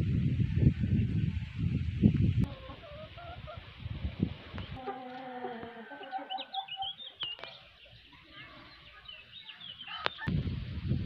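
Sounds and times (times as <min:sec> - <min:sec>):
small birds chirping: 0:00.6 - 0:10.7
chicken calling: 0:02.4 - 0:03.6, 0:04.6 - 0:07.9, 0:09.5 - 0:10.3.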